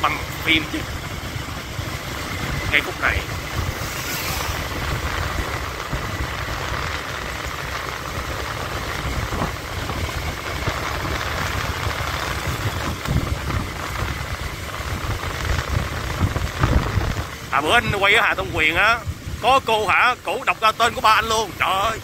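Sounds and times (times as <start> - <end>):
motorbike engine: 0.0 - 22.0.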